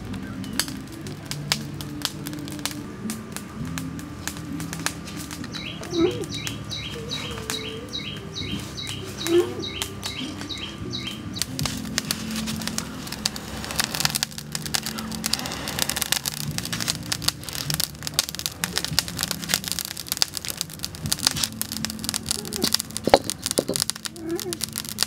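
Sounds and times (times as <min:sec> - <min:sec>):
wood fire crackling: 0:00.0 - 0:25.0
wok knocking on stones: 0:22.6 - 0:24.5.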